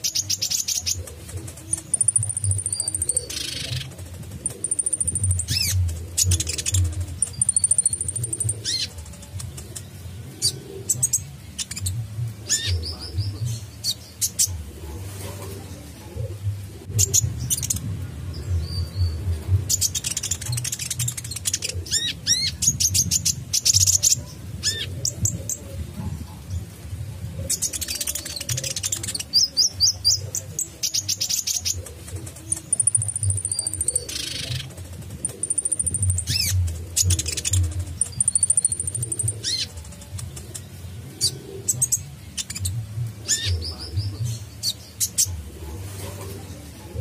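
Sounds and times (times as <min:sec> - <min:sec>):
bird chirps and trills: 0:00.0 - 0:25.7, 0:27.4 - 0:47.0
low background rumble: 0:01.0 - 0:30.8.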